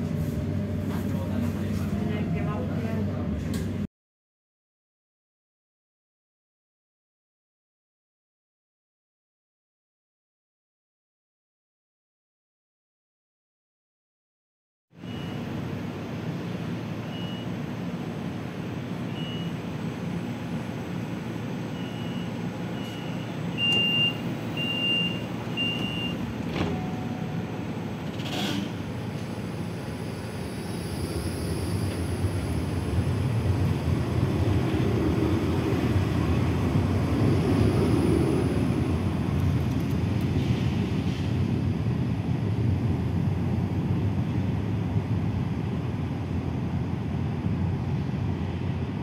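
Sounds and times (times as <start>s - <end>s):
tram running rumble: 0.0s - 3.9s, 15.1s - 49.0s
tram warning beeps: 15.0s - 15.6s, 16.9s - 17.8s, 18.7s - 19.8s, 21.3s - 28.0s.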